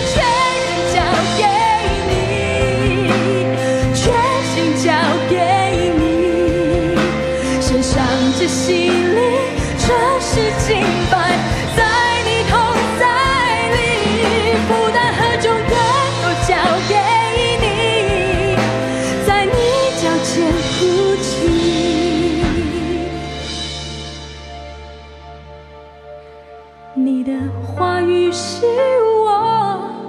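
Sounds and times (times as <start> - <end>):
person singing with vibrato: 0.0 - 23.8
instrumental backing: 0.0 - 30.0.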